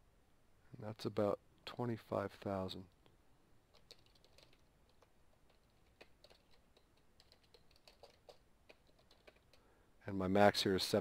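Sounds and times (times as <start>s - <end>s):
keyboard typing: 3.7s - 9.7s.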